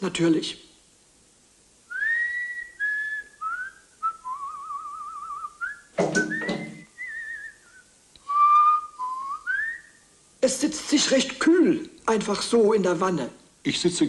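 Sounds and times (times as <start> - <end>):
man whistling a tune: 1.9 - 10.0.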